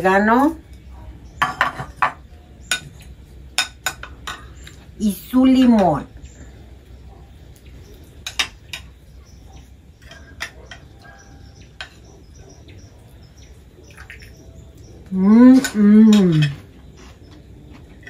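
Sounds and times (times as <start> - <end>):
dishes and utensils clinking: 1.4 - 4.8, 8.2 - 9.0, 9.6 - 12.6, 15.5 - 18.0
faint bird chirps: 6.0 - 18.0.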